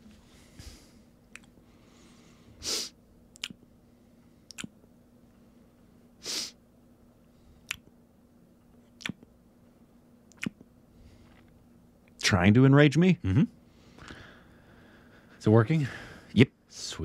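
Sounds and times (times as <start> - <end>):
sharp breaths through nose: 1.8 - 3.0.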